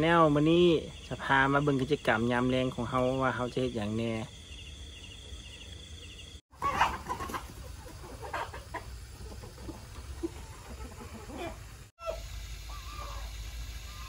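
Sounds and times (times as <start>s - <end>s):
insects chirping: 0.0s - 14.0s
chickens clucking: 6.5s - 14.0s.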